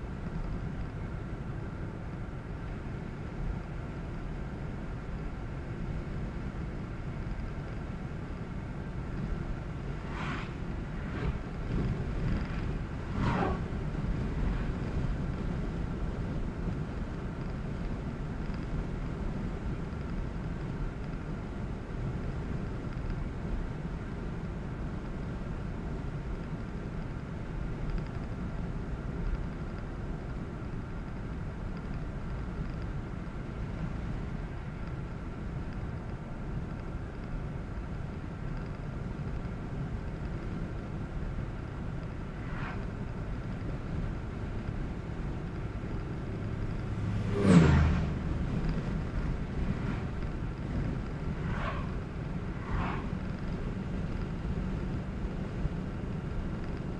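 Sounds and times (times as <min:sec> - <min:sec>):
car engine hum: 0:00.0 - 0:26.2, 0:29.8 - 0:56.9
tyres rumbling on road: 0:00.0 - 0:56.9.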